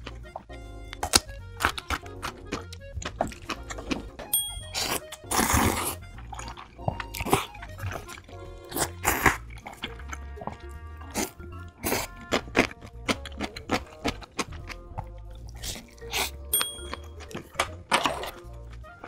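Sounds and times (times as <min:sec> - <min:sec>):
background music: 0:00.0 - 0:19.0
noodles being slurped: 0:00.0 - 0:19.0
wet chewing crunches: 0:00.0 - 0:19.0.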